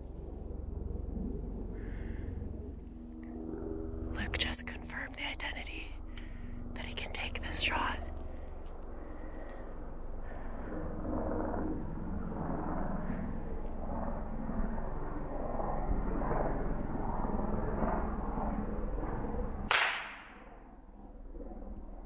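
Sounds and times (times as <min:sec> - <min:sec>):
low background noise: 0:00.0 - 0:15.8
rifle shot: 0:19.7 - 0:20.5.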